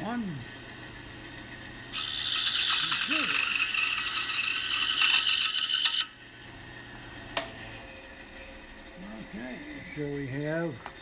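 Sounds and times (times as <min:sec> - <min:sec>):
saw motor hum: 0:00.2 - 0:07.2
scroll saw cutting wood: 0:01.9 - 0:06.2.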